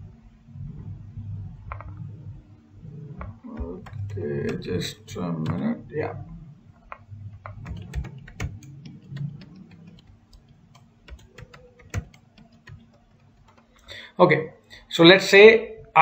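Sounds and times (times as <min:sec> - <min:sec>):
computer keyboard typing: 0:03.2 - 0:05.8, 0:06.8 - 0:14.0.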